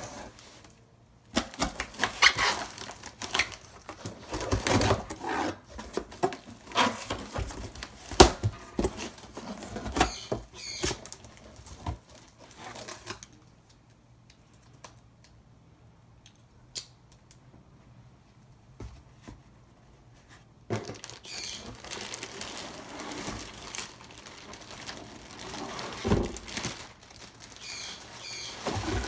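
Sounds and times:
plastic wrap crinkling: 1.4 - 13.5, 20.7 - 29.0
cardboard box flaps rustling: 28.0 - 29.0.

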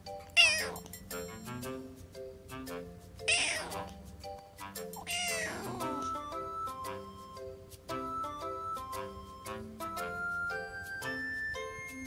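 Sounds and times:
background music: 0.0 - 12.0
kitten meowing: 0.4 - 0.8, 3.3 - 3.9, 5.1 - 6.0.

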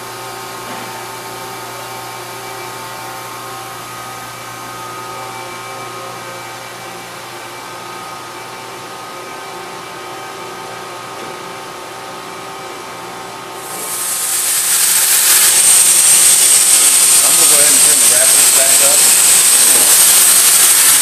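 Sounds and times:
loud machine hiss: 13.6 - 21.0
machine humming: 13.6 - 21.0
steady machine tones: 13.6 - 21.0.

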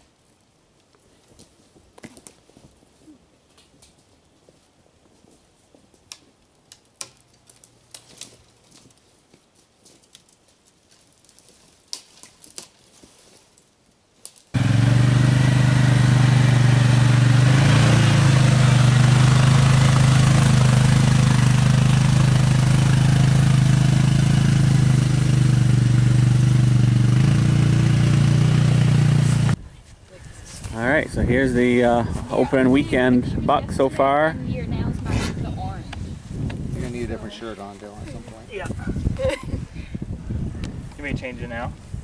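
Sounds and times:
atv engine running: 14.6 - 29.6.

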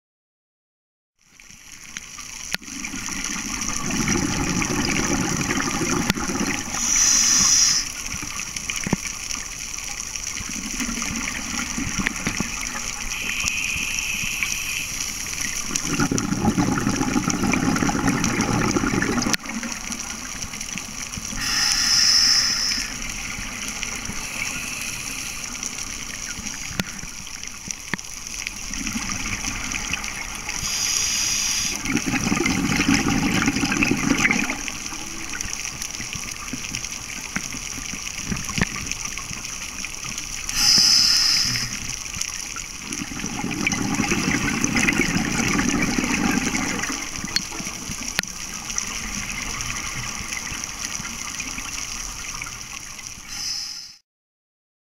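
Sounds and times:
exhaled air bubbling: 2.5 - 9.0, 10.4 - 27.7, 28.5 - 38.9, 40.2 - 53.9
diver inhaling through regulator: 6.7 - 8.0, 13.1 - 15.4, 21.4 - 23.1, 24.1 - 25.6, 30.6 - 31.9, 40.5 - 41.9, 53.3 - 54.0.

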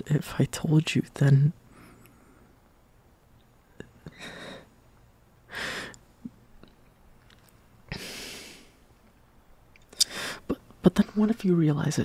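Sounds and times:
man breathing: 4.1 - 4.7, 5.5 - 6.0, 7.9 - 8.8, 10.0 - 10.5.

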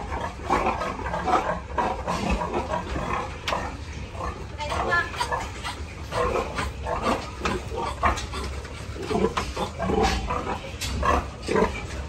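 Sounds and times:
pigs grunting: 0.0 - 12.0
steady low hum: 0.0 - 12.0.

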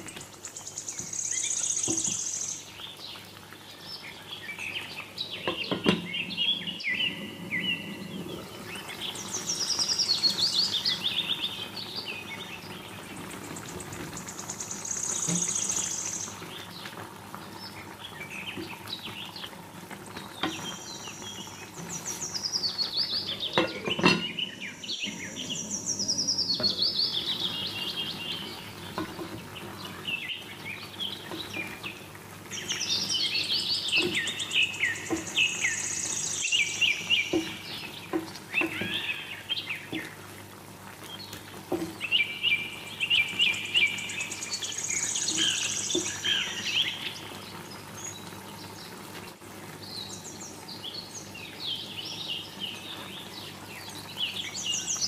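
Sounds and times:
birds singing trills: 0.0 - 40.2, 40.9 - 49.0, 49.8 - 55.0
wooden spatula knocking pan: 37.3 - 39.0, 41.7 - 42.0.

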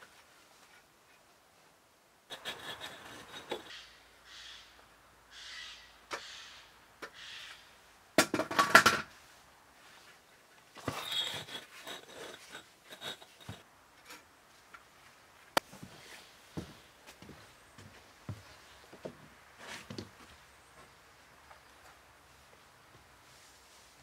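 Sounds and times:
scraping and handling noise: 2.3 - 3.8, 8.2 - 20.9.

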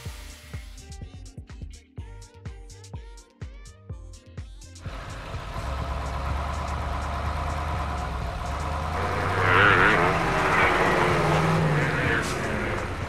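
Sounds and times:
truck engine rumbling: 4.8 - 13.0
wavering higher engine note: 4.8 - 13.0.

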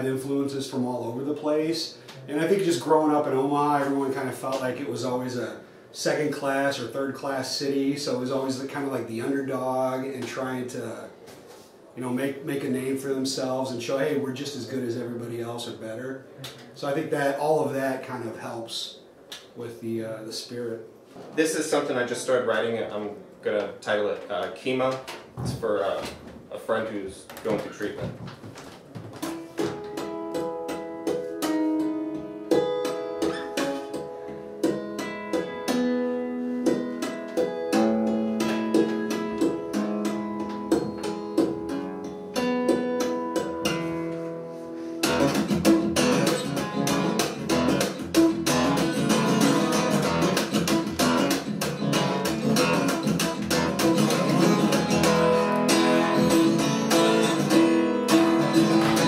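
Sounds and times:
acoustic guitar: 27.5 - 59.0.

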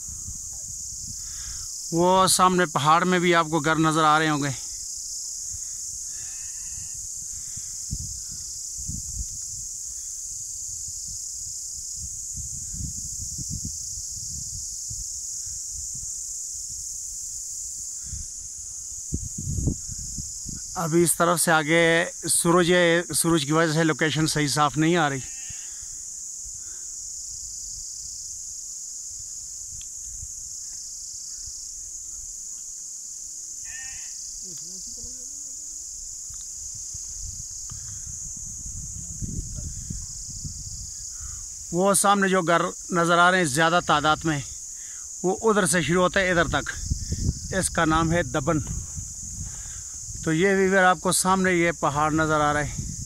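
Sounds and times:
wind buffeting microphone: 0.0 - 1.8, 6.8 - 20.8, 36.3 - 41.8, 46.1 - 50.4, 52.0 - 53.0
insects shrilling: 0.0 - 53.0.

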